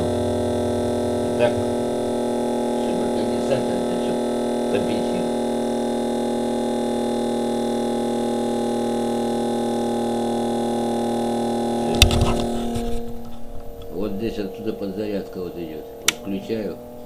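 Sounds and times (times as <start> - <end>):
small electric motor humming: 0.0 - 17.0
sharp click: 16.0 - 16.3.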